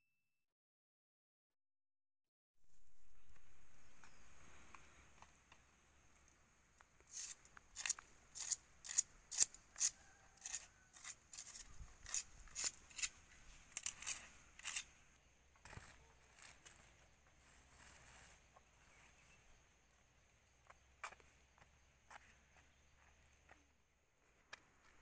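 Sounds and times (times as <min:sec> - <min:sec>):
faint high hiss: 0:02.6 - 0:09.6.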